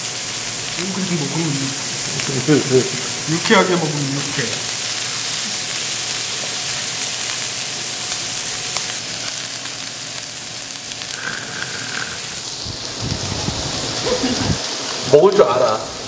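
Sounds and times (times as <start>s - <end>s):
beef sizzling on a griddle: 0.0s - 16.0s
fat popping and crackling: 2.0s - 14.6s.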